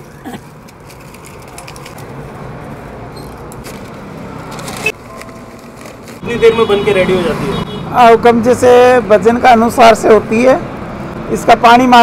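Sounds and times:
twigs and paper rustling: 0.0 - 6.2.

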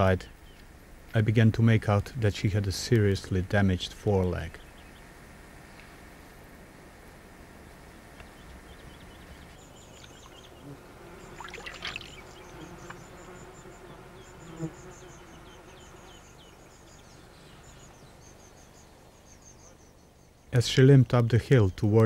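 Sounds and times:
flying insect buzzing: 9.8 - 17.0
insects chirping rapidly: 11.2 - 17.2.

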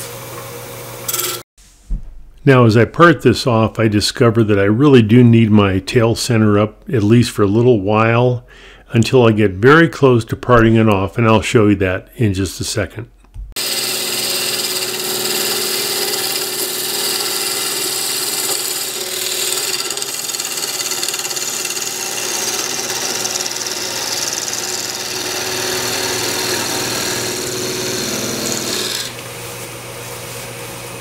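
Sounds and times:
wood lathe humming: 13.6 - 29.3
tool scraping spinning wood: 13.6 - 29.4.

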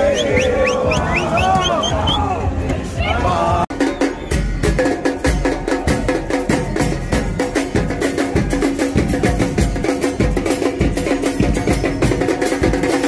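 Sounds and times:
music with percussion beat: 3.7 - 13.0.

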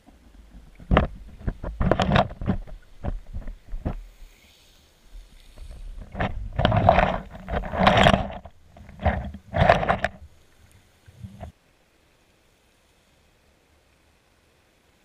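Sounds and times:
muffled underwater rushing and knocking: 0.0 - 4.2, 5.5 - 10.3.

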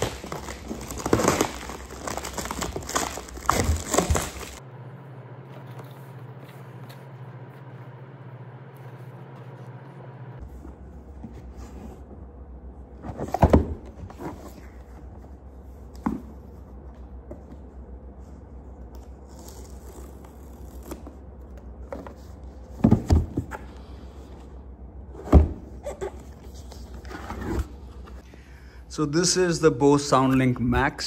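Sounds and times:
steady low hum: 0.0 - 31.0
box thunks and knocks: 22.7 - 23.5.

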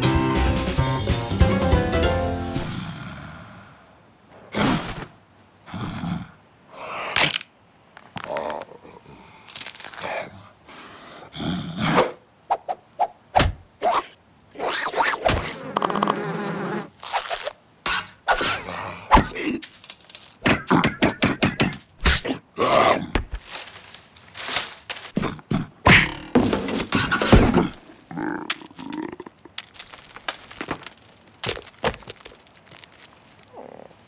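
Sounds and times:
cartoon thunks and whacks: 13.4 - 13.6
creature grunts and squeaks: 13.8 - 15.6, 27.0 - 29.6.

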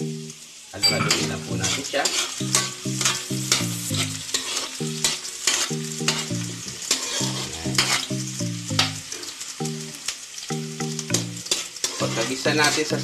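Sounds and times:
garlic and onion sizzling in oil: 0.0 - 13.0
light background music: 0.0 - 13.0
metal spatula scraping wok: 0.8 - 8.1, 11.4 - 12.9.

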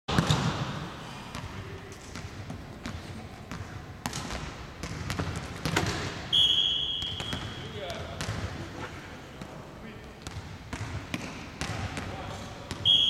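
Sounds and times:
volleyballs smacking in hall: 0.1 - 13.0.

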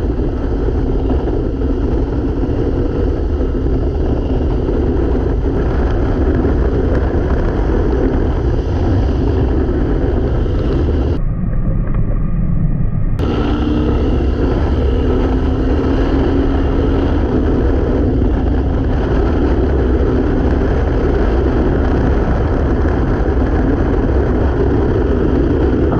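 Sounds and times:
motorcycle engine running: 0.0 - 11.2, 13.2 - 25.9
steady hum: 0.0 - 25.9
wind rush: 0.0 - 25.9.

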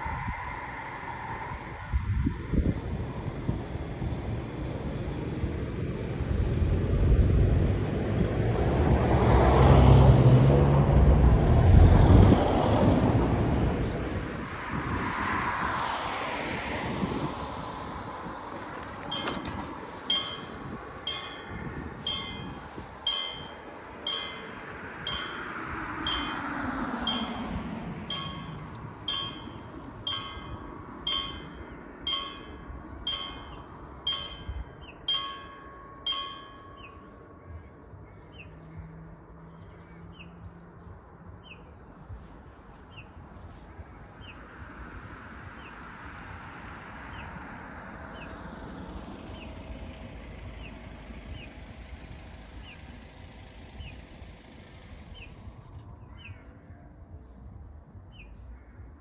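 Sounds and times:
vehicle passing by: 0.0 - 37.0
faint vehicle passing: 0.0 - 56.7
level crossing warning bell ringing: 19.1 - 37.3.

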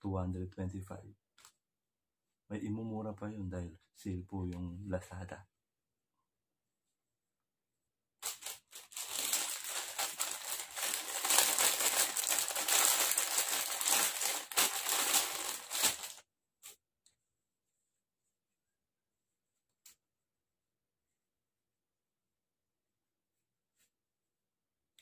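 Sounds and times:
packaging wrapper crinkling: 8.2 - 16.2.

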